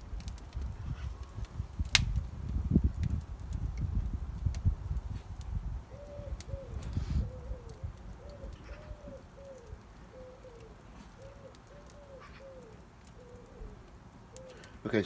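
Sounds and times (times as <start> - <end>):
wood fire crackling: 0.0 - 15.0
pigeon cooing: 5.9 - 14.8.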